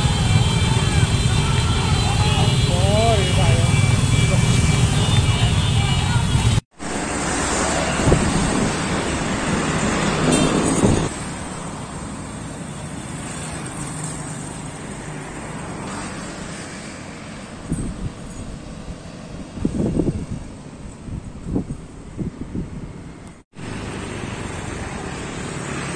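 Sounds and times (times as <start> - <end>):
road traffic: 0.0 - 25.9
wind on microphone: 7.6 - 11.1, 17.5 - 23.4.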